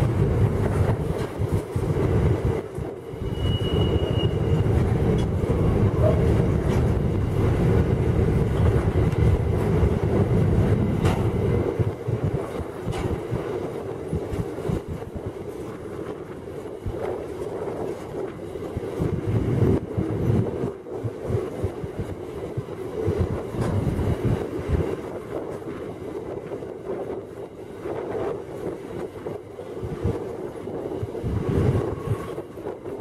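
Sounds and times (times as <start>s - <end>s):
wagon wheels rumbling on rail: 0.0s - 33.0s
high wheel squeal: 3.2s - 4.7s.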